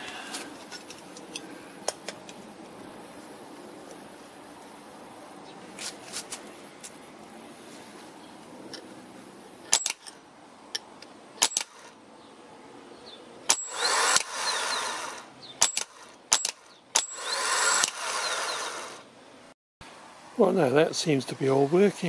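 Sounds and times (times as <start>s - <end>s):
starter motor spinning up: 13.6s - 15.3s, 17.0s - 19.0s.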